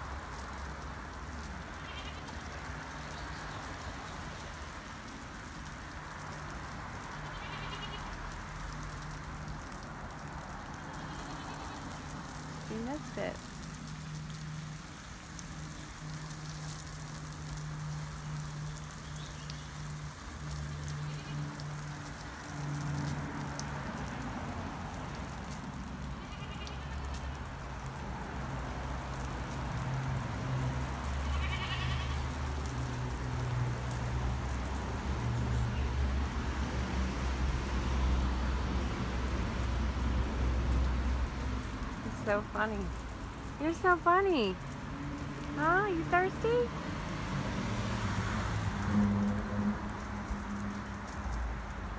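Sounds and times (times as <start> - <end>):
water pattering on wet dirt: 0.0 - 51.9
goat bleating: 10.9 - 11.9, 26.2 - 27.0, 31.2 - 32.2.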